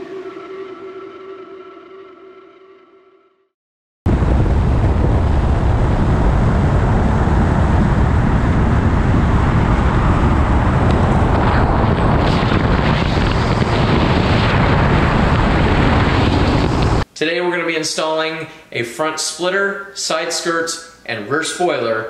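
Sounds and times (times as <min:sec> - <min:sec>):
wind on microphone: 0:04.1 - 0:17.0
car road and engine noise: 0:05.0 - 0:14.3.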